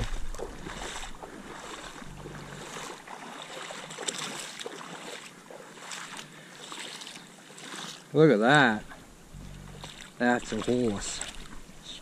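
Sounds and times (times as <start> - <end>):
shallow water sloshing and splashing: 0.0 - 12.0.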